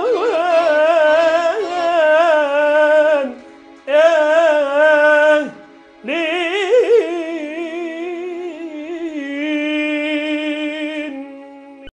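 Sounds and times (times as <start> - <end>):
man singing slow song: 0.0 - 11.9.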